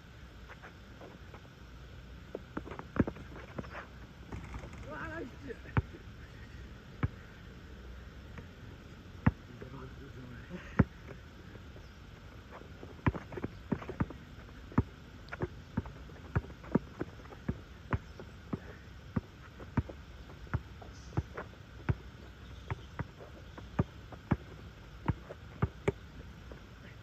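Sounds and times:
basketball bouncing on asphalt: 0:02.3 - 0:06.0, 0:06.9 - 0:07.3, 0:09.2 - 0:09.9, 0:10.7 - 0:11.2, 0:12.5 - 0:26.6.

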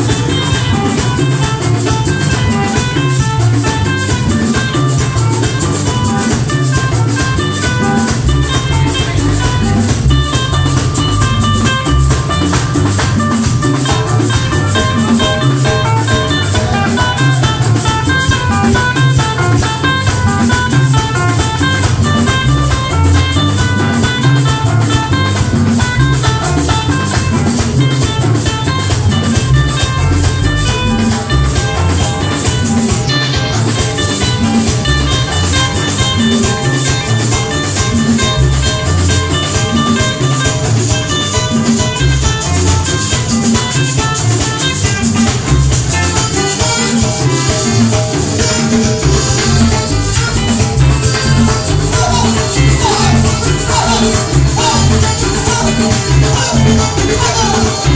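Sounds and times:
button accordion melody: 0:00.0 - 0:57.9
live band dance music: 0:00.0 - 0:57.9.

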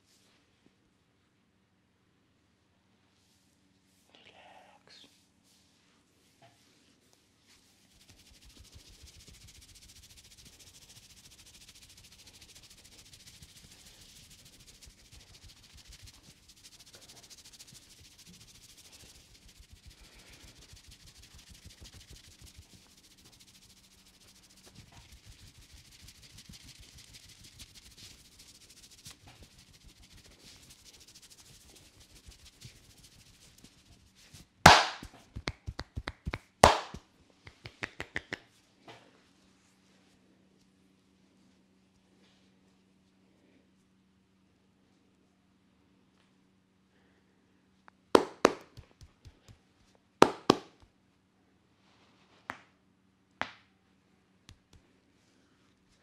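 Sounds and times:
fingers rubbing wet hair: 0:07.8 - 0:37.0, 0:48.4 - 0:49.6.

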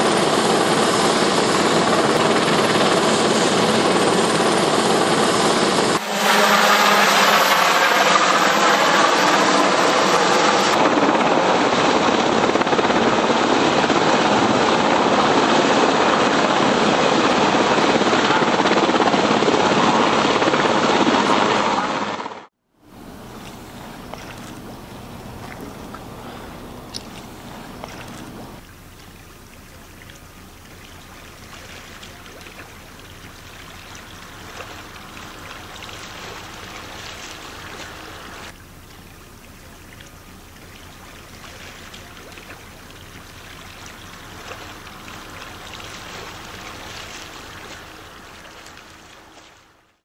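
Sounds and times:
water splashing and sloshing: 0:22.8 - 0:50.0.

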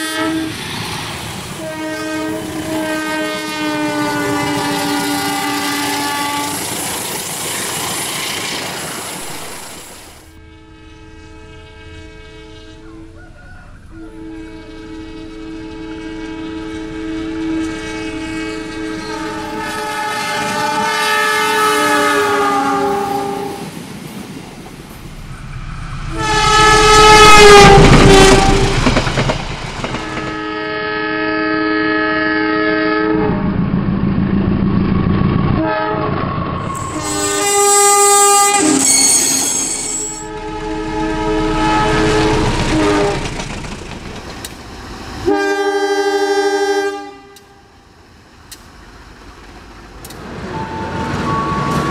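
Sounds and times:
multi-tone locomotive horn blasts: 0:00.0 - 0:00.7, 0:01.6 - 0:06.8, 0:10.3 - 0:23.7, 0:25.2 - 0:29.0, 0:29.9 - 0:33.5, 0:35.6 - 0:43.5, 0:45.2 - 0:47.7, 0:50.4 - 0:51.9
train rumble and rail clatter: 0:00.0 - 0:51.9.

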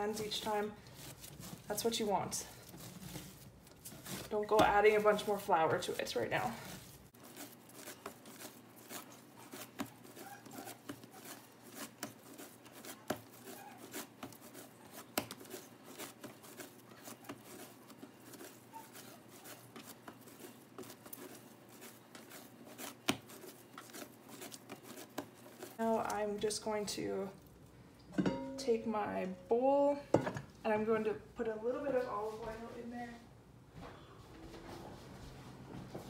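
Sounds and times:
dough kneaded by hand: 0:00.0 - 0:27.6.

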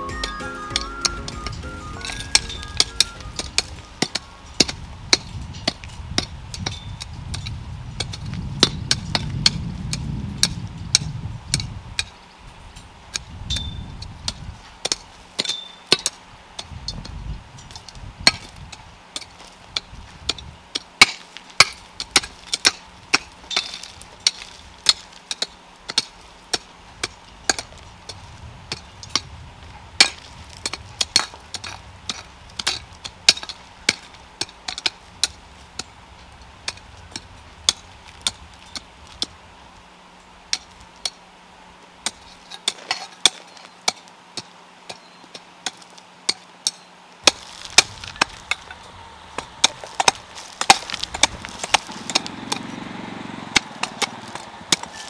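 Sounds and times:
hoes chopping stony soil: 0:00.0 - 0:12.2, 0:13.1 - 0:39.4, 0:40.5 - 0:41.2, 0:42.0 - 0:55.0
stones clinking: 0:47.3 - 0:52.6.

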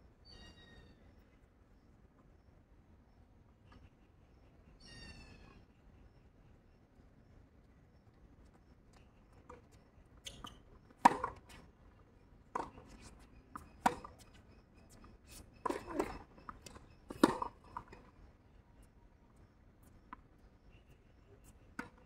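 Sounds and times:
tennis ball bouncing on court: 0:10.3 - 0:11.6
tennis ball struck by rackets: 0:11.0 - 0:11.5.

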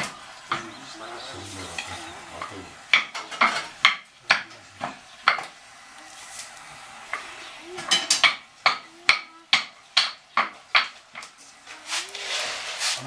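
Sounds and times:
wooden pole knocking on stones: 0:02.4 - 0:05.6, 0:07.8 - 0:11.4.

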